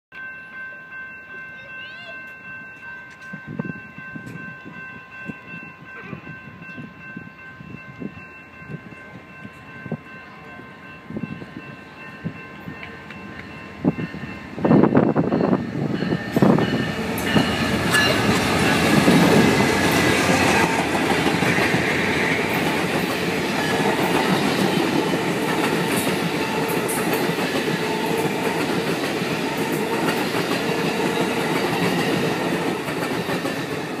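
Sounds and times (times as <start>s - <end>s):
diesel locomotive passing: 0.3s - 34.0s
train wheels clattering on rails: 12.2s - 34.0s.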